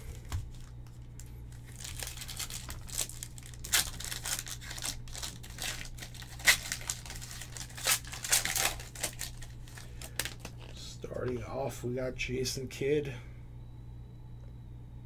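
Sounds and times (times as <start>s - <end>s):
plastic wrapper crinkling and tearing: 0.1s - 10.9s.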